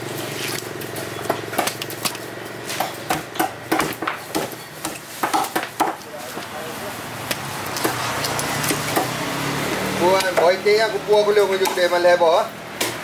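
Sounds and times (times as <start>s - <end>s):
cleaver chopping on wooden block: 2.7s - 6.0s.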